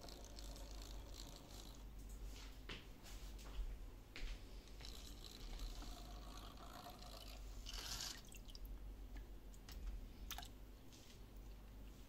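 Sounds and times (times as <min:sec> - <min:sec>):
water drips: 0:08.0 - 0:08.9.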